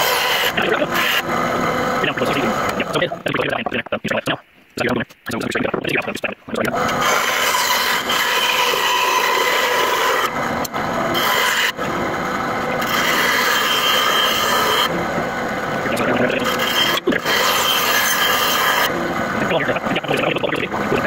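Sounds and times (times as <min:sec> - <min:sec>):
tool scraping wood: 0:00.0 - 0:01.5, 0:06.7 - 0:10.4, 0:11.0 - 0:12.0, 0:12.7 - 0:15.0, 0:15.9 - 0:19.0.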